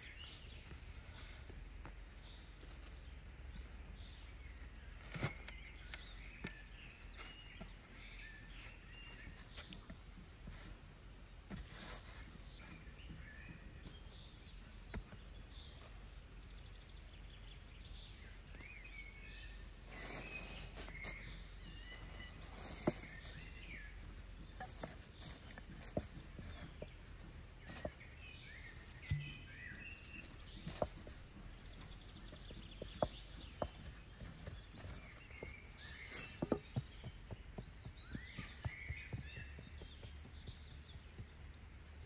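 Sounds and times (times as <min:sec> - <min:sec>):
birds chirping: 0:00.0 - 0:42.0
sharp clicks and knocks: 0:28.9 - 0:35.0.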